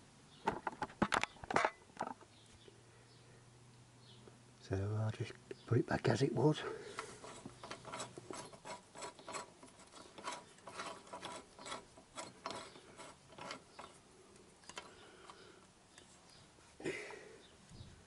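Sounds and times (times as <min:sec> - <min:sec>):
light scraping of bolt: 0:06.8 - 0:16.2
metallic clicks of bolt and nut: 0:06.9 - 0:16.1.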